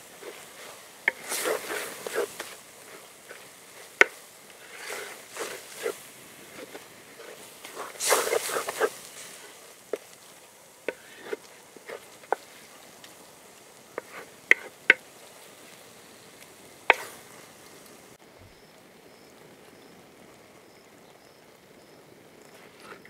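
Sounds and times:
low sizzle: 0.0 - 23.0
spatula scraping clay pot: 0.2 - 10.1, 10.9 - 12.7, 13.9 - 14.8, 16.9 - 17.2.

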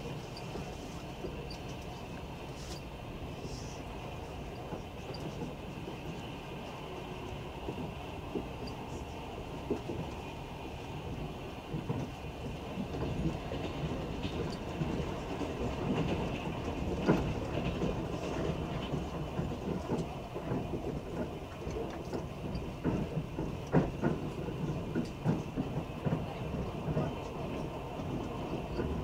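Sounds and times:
train wheels rumbling on rails: 0.0 - 29.0
wheels clicking over rail joints: 4.4 - 29.0.

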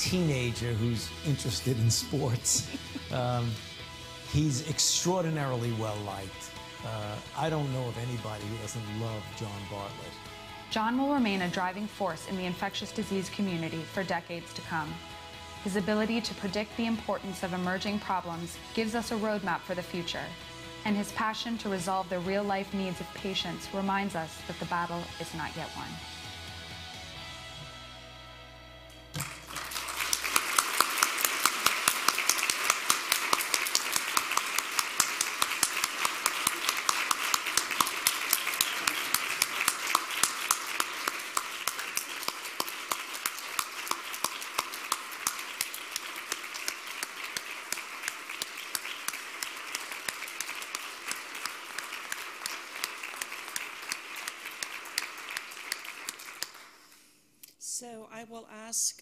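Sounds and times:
background music: 0.0 - 56.9
audience applauding: 29.2 - 56.8.

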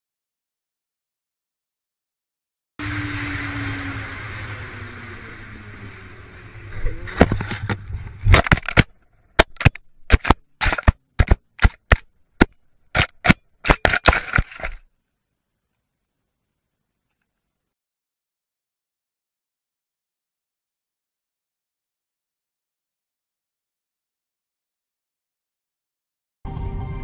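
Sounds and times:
rapid sharp cracks: 7.2 - 14.8.

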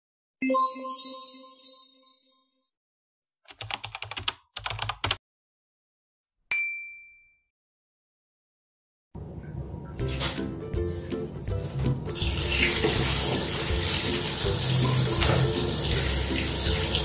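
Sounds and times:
keyboard typing clicks: 3.5 - 5.2
ding: 6.5 - 7.5.

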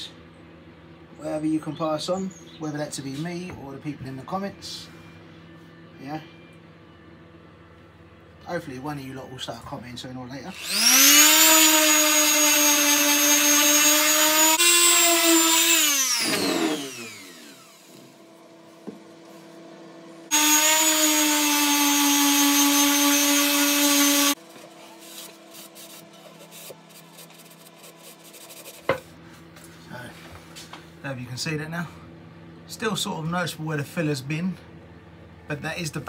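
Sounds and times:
electric orbital sander running: 10.5 - 18.4, 20.3 - 24.4.

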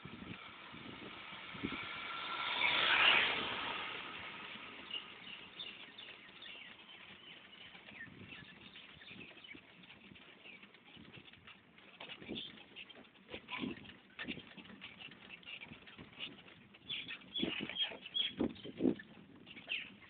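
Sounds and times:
vehicle passing: 0.0 - 9.0
low traffic noise: 0.0 - 20.0.

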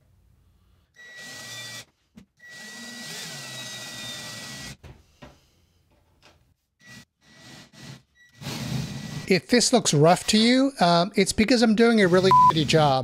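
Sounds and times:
cordless drill whining through steel: 1.0 - 4.8.

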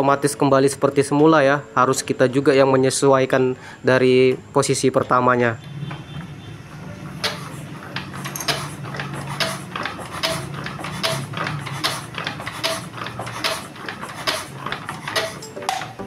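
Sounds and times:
metallic clicks from hand pump: 7.2 - 15.9.

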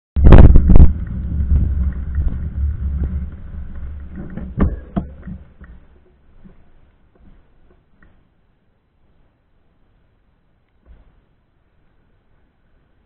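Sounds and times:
low rumble: 0.2 - 6.1.

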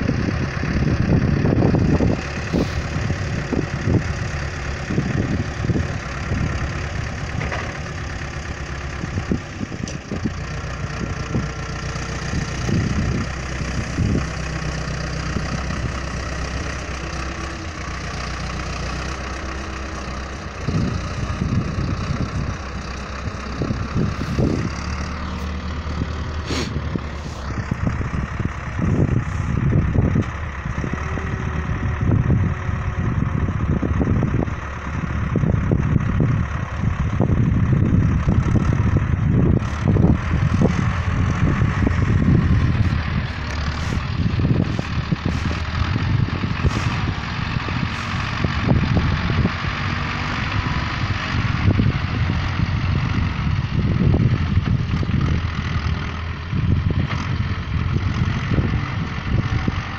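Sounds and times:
backhoe diesel engine running: 0.0 - 59.9.

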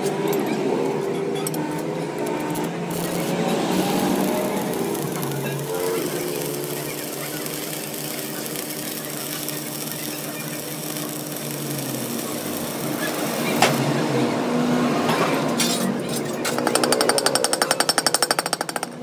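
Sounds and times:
arc welding crackling: 2.5 - 14.6.

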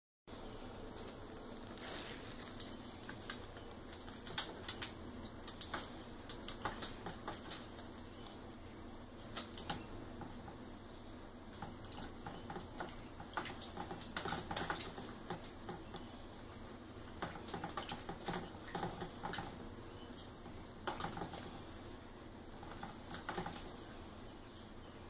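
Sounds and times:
wings flapping: 2.2 - 8.1, 11.6 - 15.8, 17.2 - 19.6, 20.8 - 21.6, 22.6 - 23.7
bird splashing in water: 11.6 - 15.6.

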